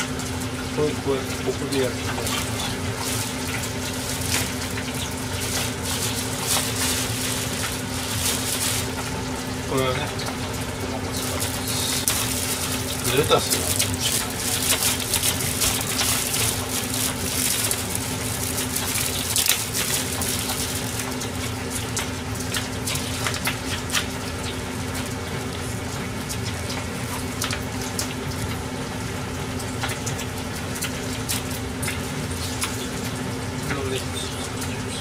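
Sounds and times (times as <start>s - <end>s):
steady low hum: 0.0s - 35.0s
lettuce leaves snapping and tearing: 1.5s - 24.1s
plastic bag crinkling: 1.6s - 23.4s.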